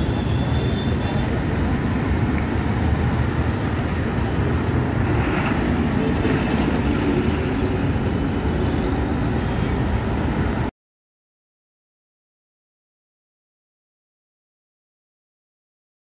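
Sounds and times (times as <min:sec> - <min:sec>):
bus driving past: 0:00.0 - 0:10.7
road traffic noise: 0:00.0 - 0:10.7.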